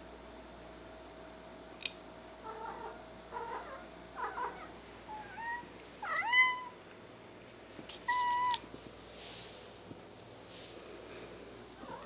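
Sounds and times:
cat meowing: 2.5s - 6.8s, 8.1s - 8.6s.

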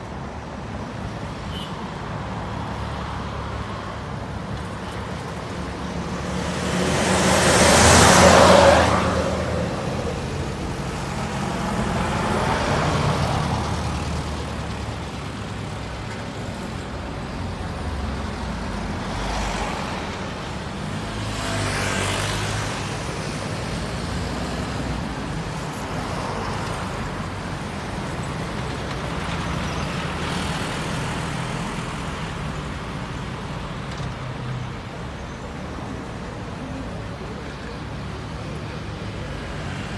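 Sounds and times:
vehicles driving past: 1.0s - 39.9s.

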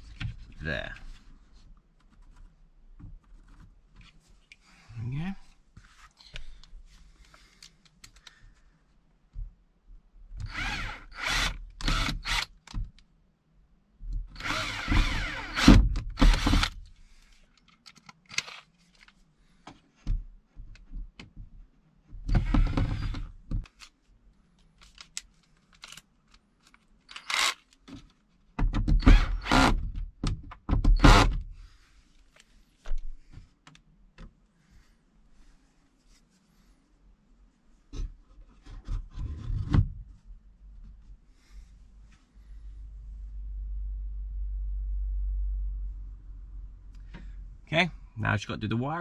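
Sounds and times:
cordless drill driving screws: 10.4s - 12.5s, 14.4s - 16.8s, 22.3s - 23.2s, 27.1s - 27.6s, 29.0s - 29.8s.

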